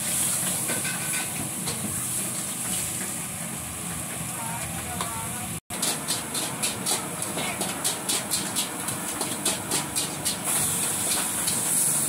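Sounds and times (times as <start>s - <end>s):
gas burner and oil hissing: 0.0s - 12.0s
metal spatula scraping a wok: 0.1s - 1.3s.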